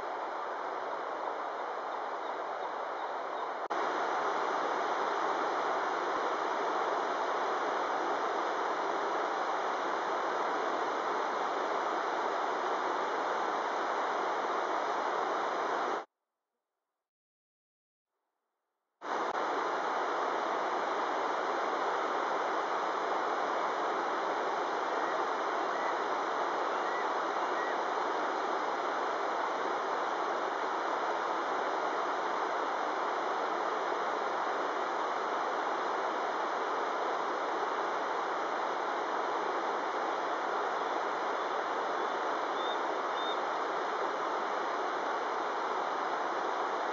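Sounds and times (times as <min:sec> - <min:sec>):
river water rushing over rocks: 0:19.1 - 0:46.9.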